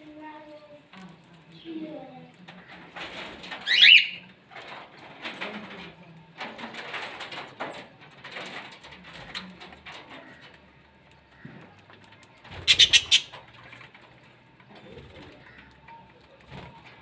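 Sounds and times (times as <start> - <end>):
budgerigars chattering and chirping: 12.6 - 13.3.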